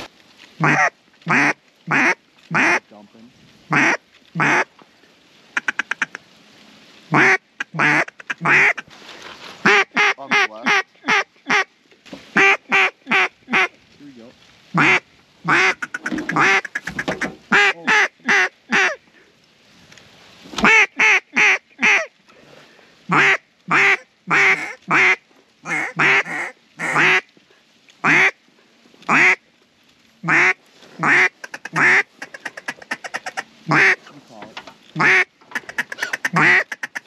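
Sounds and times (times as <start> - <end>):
duck quacking: 0.0 - 2.8, 3.7 - 4.7, 5.6 - 6.2, 7.1 - 8.8, 9.6 - 11.7, 12.4 - 13.7, 14.7 - 19.0, 23.1 - 27.3, 28.0 - 28.4, 29.1 - 29.4, 30.2 - 34.1, 35.0 - 37.0.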